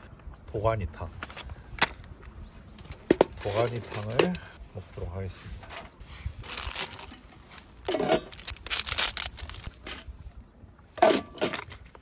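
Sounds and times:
plastic packaging crinkling and tearing: 6.4s - 10.0s.

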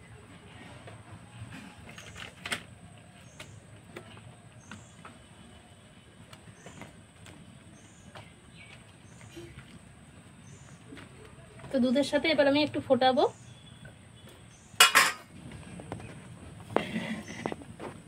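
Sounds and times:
utensils knocking clay pot: 14.8s - 15.3s.

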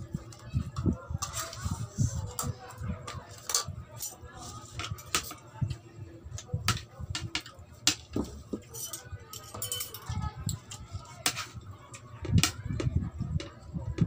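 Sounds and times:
cutlery clinking on plate: 7.4s - 10.1s.

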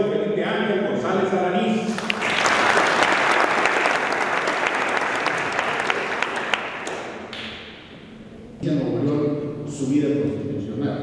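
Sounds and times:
audience applause: 1.9s - 7.6s.

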